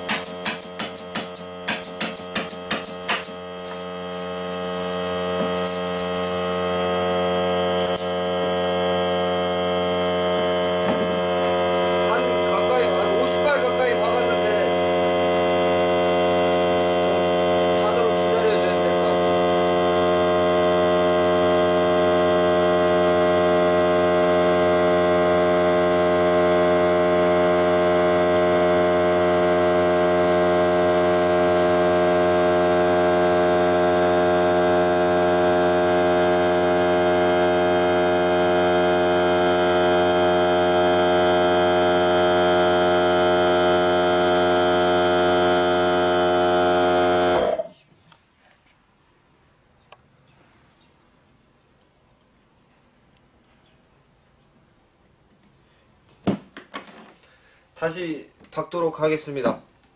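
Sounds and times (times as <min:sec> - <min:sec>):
air compressor motor humming: 0:00.0 - 0:47.8.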